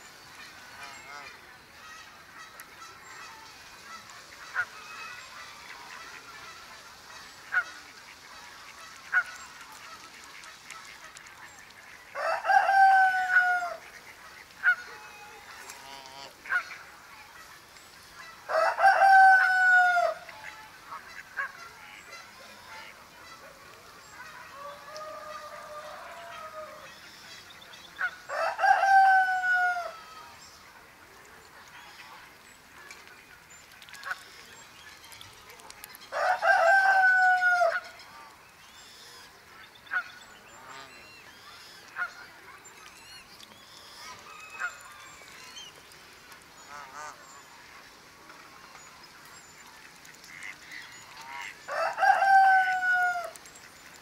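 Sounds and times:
faint countryside background: 0:00.0 - 0:54.0
farmyard fowl calling: 0:11.9 - 0:17.6, 0:18.2 - 0:27.4, 0:28.0 - 0:30.4, 0:35.9 - 0:38.3, 0:44.0 - 0:45.8, 0:46.6 - 0:47.2, 0:50.0 - 0:53.8.

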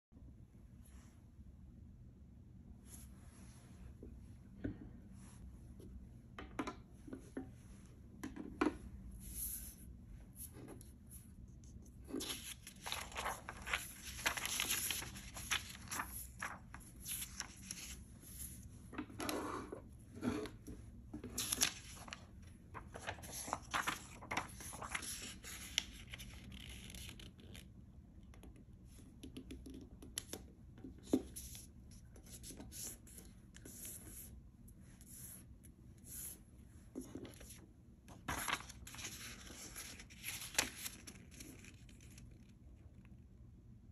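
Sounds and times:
paper rustling on wooden table: 0:12.0 - 0:18.6, 0:21.2 - 0:26.3, 0:37.0 - 0:42.3.

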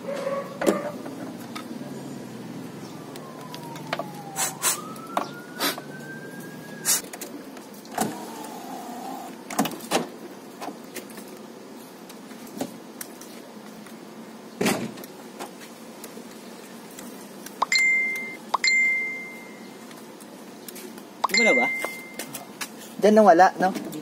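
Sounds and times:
power window motor whining: 0:07.9 - 0:09.3
high-pitched electronic beep: 0:17.6 - 0:19.6, 0:21.2 - 0:22.3.

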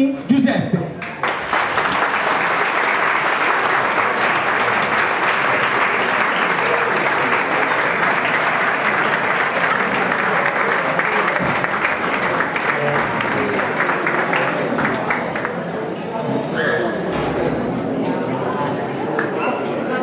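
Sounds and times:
crowd applauding: 0:01.0 - 0:15.9.

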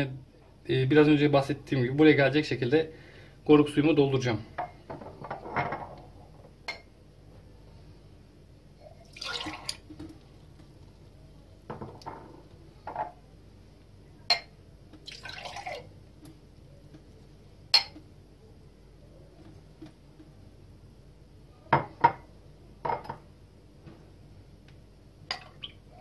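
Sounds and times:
juice pouring into glass: 0:09.0 - 0:10.1, 0:15.0 - 0:15.9
glasses clinking and knocking: 0:17.8 - 0:18.0.

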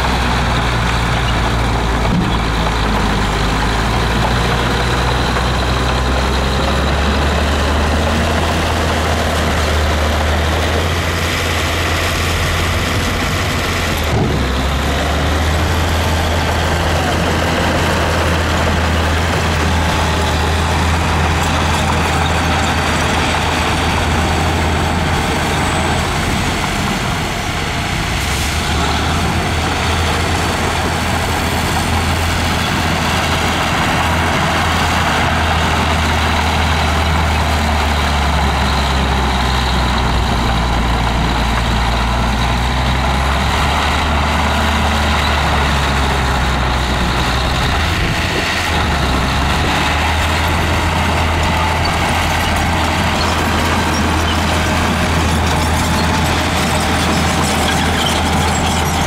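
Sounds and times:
bulldozer pushing dirt: 0:00.0 - 0:59.0
diesel engines droning: 0:00.0 - 0:59.0
dump trucks tipping loads: 0:00.0 - 0:59.0.

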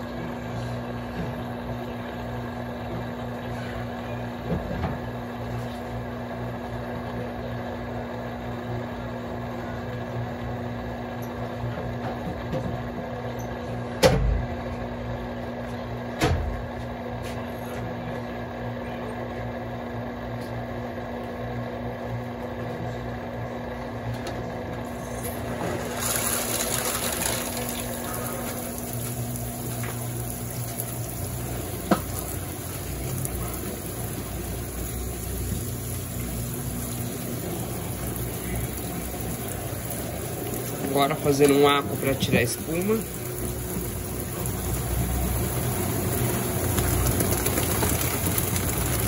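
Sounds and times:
washing machine humming: 0:00.0 - 0:49.0
water rushing into drum: 0:25.2 - 0:49.0.

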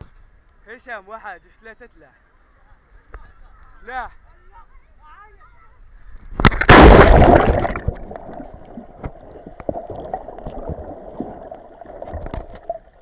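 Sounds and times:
loud water splash: 0:06.4 - 0:09.1
underwater bubbling and gurgling: 0:06.4 - 0:13.0.

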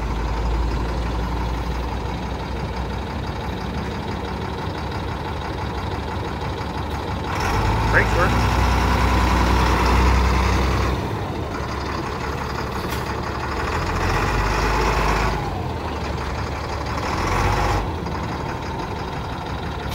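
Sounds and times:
truck engine idling: 0:00.0 - 0:19.9.

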